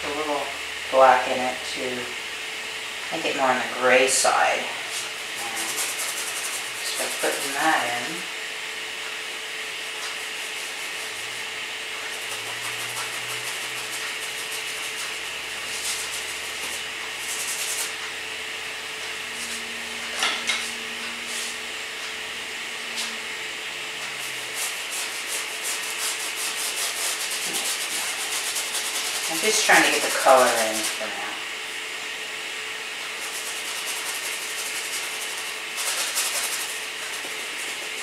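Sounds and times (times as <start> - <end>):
paintbrush scrubbing on canvas: 3.3 - 8.2, 9.9 - 18.0, 19.3 - 19.7, 20.7 - 21.6, 24.1 - 31.2, 33.0 - 38.0.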